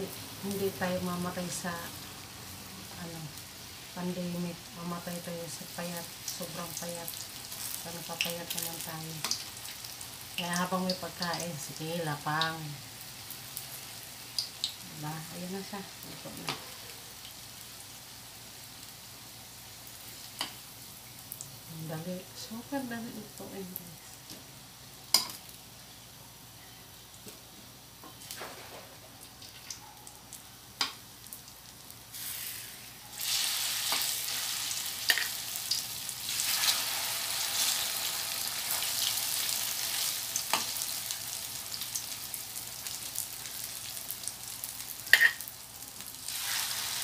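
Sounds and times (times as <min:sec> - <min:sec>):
oil sizzling in a wok: 0:00.0 - 0:26.2, 0:27.9 - 0:47.0
metal tongs clinking on pan: 0:25.1 - 0:25.4, 0:45.1 - 0:45.4.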